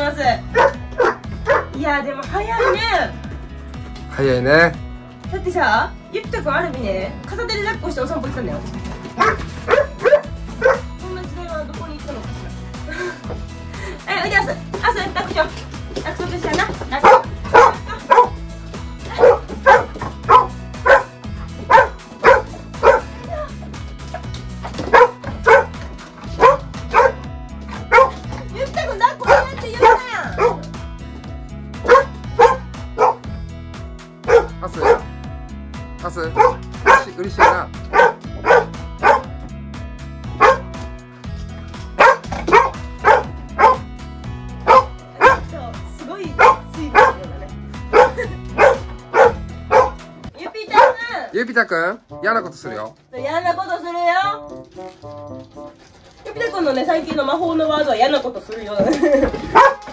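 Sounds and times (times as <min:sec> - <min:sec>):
light background music: 0:00.0 - 0:59.9
dog barking: 0:00.4 - 0:01.8, 0:02.5 - 0:03.1, 0:09.1 - 0:10.9, 0:17.0 - 0:18.4, 0:19.1 - 0:23.5, 0:24.1 - 0:28.5, 0:29.1 - 0:30.7, 0:31.8 - 0:33.2, 0:34.3 - 0:35.1, 0:36.4 - 0:39.3, 0:40.4 - 0:40.7, 0:42.0 - 0:43.9, 0:44.6 - 0:45.6, 0:46.4 - 0:51.2, 0:59.4 - 0:59.9.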